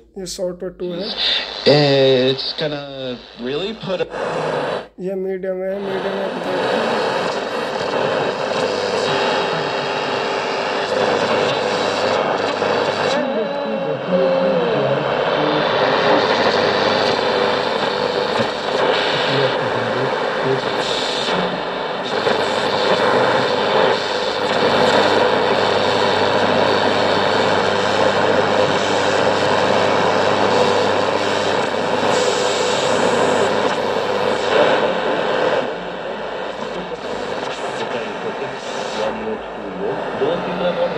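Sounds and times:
radio hiss and static: 0.0s - 40.9s
radio tuning whistle: 1.0s - 5.0s, 15.3s - 40.9s.

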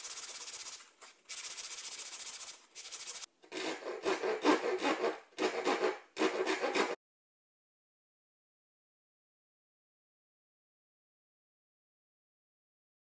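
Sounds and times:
sandpaper scraping wood: 0.0s - 7.0s
hand tool scraping wood: 2.9s - 7.0s.

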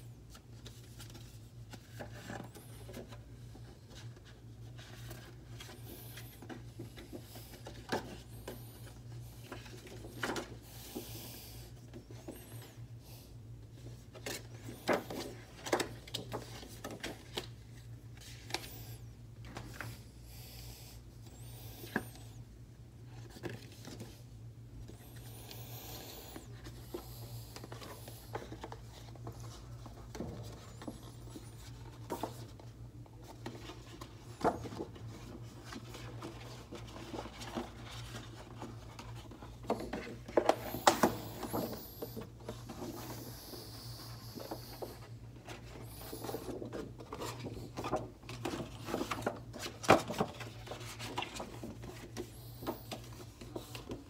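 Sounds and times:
steady low hum: 0.0s - 54.0s
paper rustling and crinkling: 13.7s - 20.1s, 23.0s - 54.0s.

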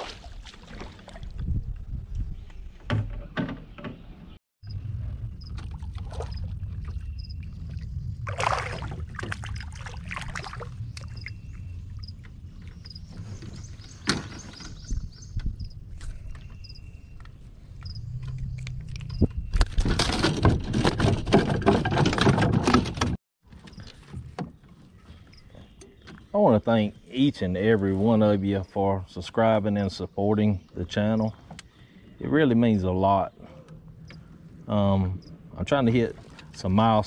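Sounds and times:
low steady rumble: 4.6s - 13.4s.

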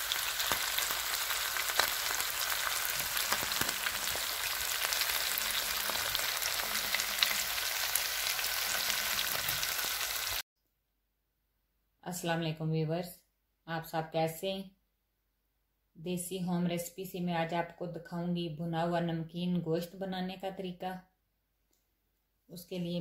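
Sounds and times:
meat sizzling in hot oil: 0.0s - 10.4s.

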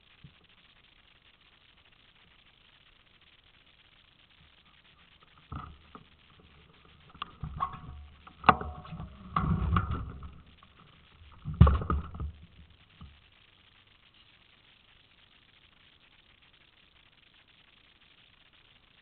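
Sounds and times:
bicycle knocks and rattles: 5.4s - 13.2s.

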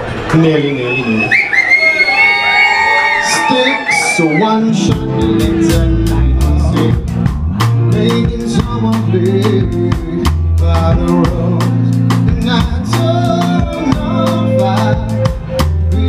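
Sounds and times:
keyboards: 3.2s - 16.0s
electric bass notes: 4.6s - 16.0s
drum kit hits: 4.8s - 16.0s.

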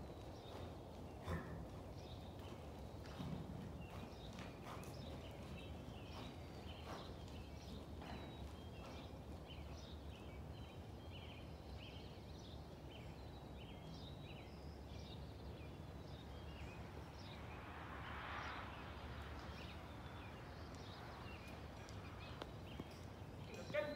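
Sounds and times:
horse hoofbeats on sand: 0.0s - 11.0s, 19.4s - 23.9s
small birds chirping: 0.0s - 23.9s.

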